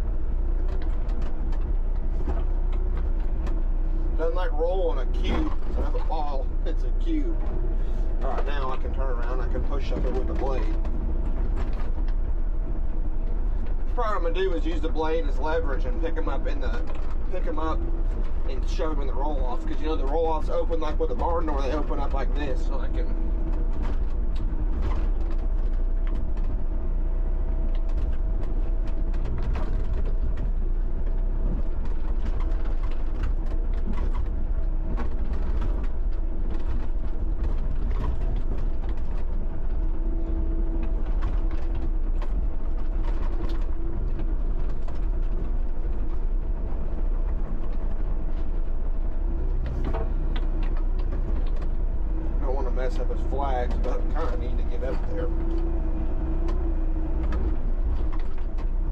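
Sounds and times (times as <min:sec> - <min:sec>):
excavator engine and hydraulics whining: 0:00.0 - 0:58.9
metallic clanks and creaks: 0:00.0 - 0:58.9.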